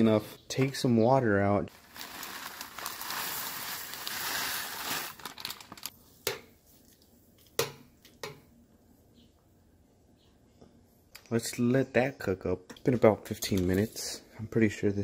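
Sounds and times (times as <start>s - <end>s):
dry food pouring into water: 1.7s - 5.9s
plastic bag crinkling: 1.7s - 6.0s.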